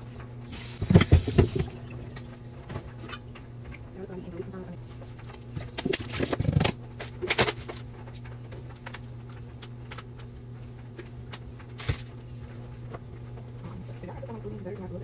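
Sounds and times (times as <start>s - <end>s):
refrigerator hum: 0.0s - 15.0s
food packaging clattering and rustling: 5.0s - 7.9s, 11.7s - 12.2s.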